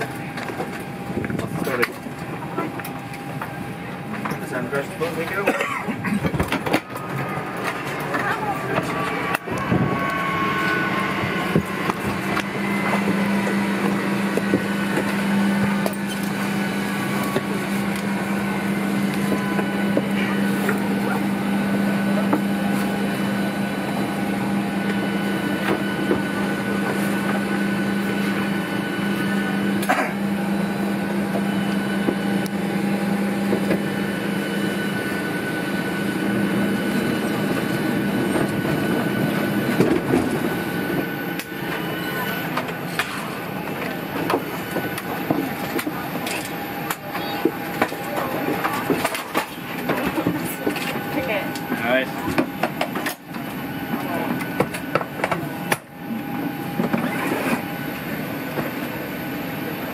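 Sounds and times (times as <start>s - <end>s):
electric motor hum: 7.0s - 42.6s.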